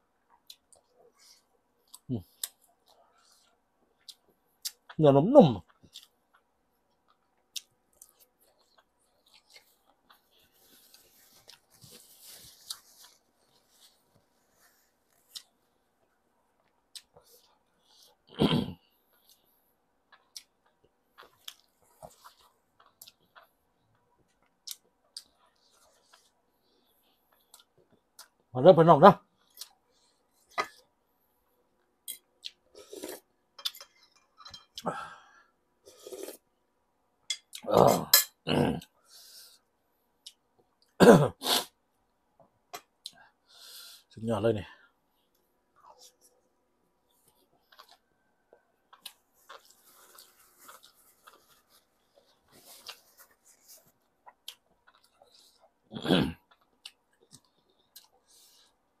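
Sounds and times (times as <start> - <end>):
chewing and mouth noises: 47.1 - 55.8.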